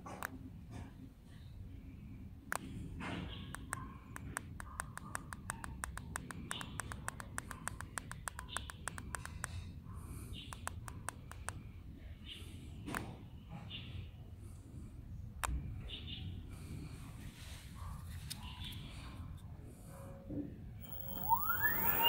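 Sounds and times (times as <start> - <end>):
motor wheel spinning with ticking: 20.8 - 22.0.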